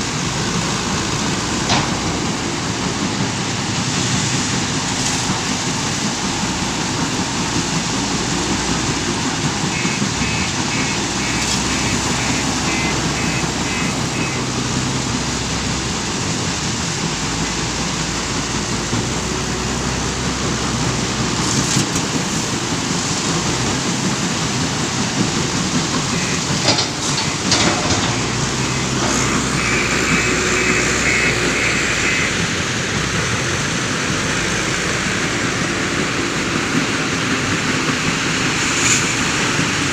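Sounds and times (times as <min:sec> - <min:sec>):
diesel engine working: 0:00.0 - 0:39.9
reversing alarm beeping: 0:09.6 - 0:14.6, 0:26.0 - 0:32.5
sharp knocks and rattles: 0:25.2 - 0:29.4
stone crusher machinery din: 0:25.9 - 0:32.0.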